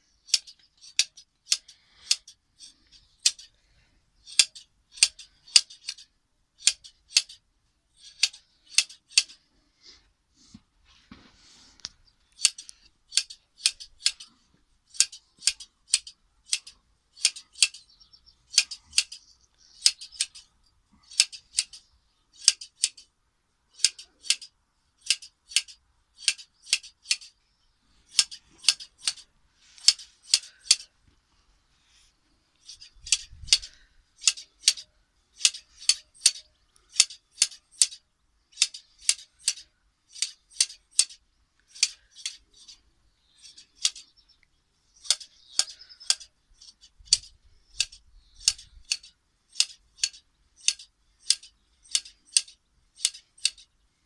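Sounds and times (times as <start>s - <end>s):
shearing scissors snipping wool: 0.0s - 3.5s, 4.2s - 7.4s, 8.0s - 9.4s, 12.3s - 17.9s, 18.5s - 23.1s, 23.7s - 27.4s, 28.1s - 30.9s, 32.6s - 42.8s, 43.4s - 44.2s, 45.0s - 53.7s.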